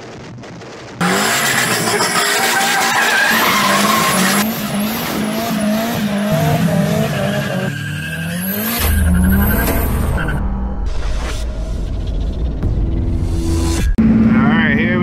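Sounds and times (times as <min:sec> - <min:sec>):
car engine revving hard: 0:01.0 - 0:09.8.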